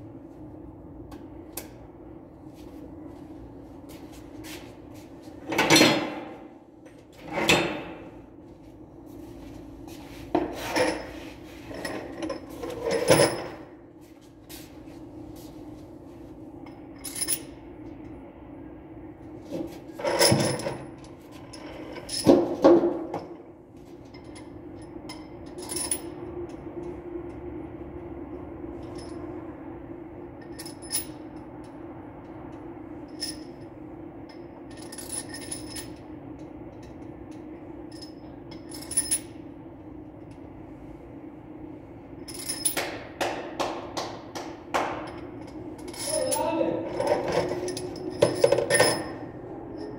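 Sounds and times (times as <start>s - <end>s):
steady low hum: 0.0s - 49.9s
metal tools clinking: 37.9s - 39.4s, 42.2s - 42.8s, 45.1s - 49.9s.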